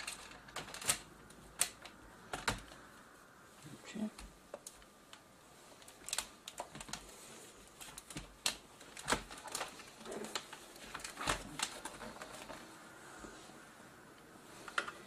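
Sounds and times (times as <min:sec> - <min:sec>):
plastic and metal clicks and knocks: 0:00.0 - 0:02.9, 0:07.8 - 0:12.6.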